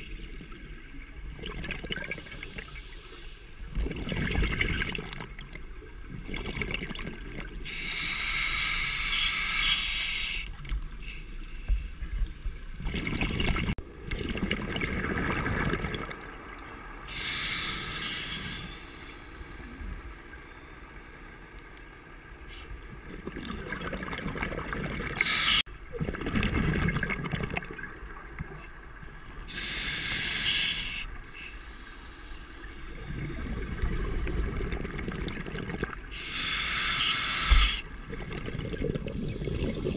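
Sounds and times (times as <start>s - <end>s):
exhaled bubbles: 0.0s - 2.7s, 3.7s - 7.7s, 12.8s - 16.5s, 23.0s - 28.5s, 33.0s - 39.9s
scuba regulator hissing inhale: 2.2s - 3.6s, 7.7s - 10.5s, 17.1s - 20.3s, 25.2s - 25.7s, 29.5s - 33.0s, 36.1s - 37.9s, 39.1s - 39.9s.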